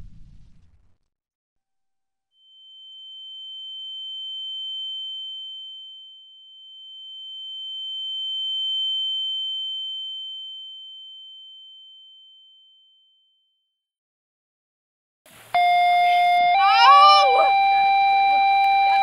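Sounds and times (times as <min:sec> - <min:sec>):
high-pitched ringing tone: 0:02.4 - 0:13.4, 0:15.6 - 0:19.0.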